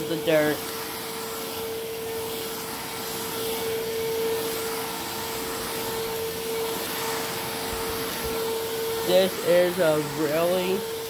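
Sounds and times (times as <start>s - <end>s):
stick vacuum running on carpet: 0.0s - 11.0s.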